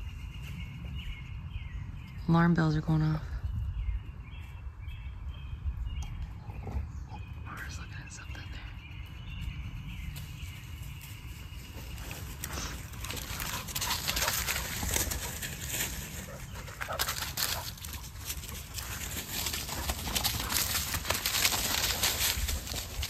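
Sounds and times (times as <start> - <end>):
footsteps crunching dry leaves: 10.0 - 23.0.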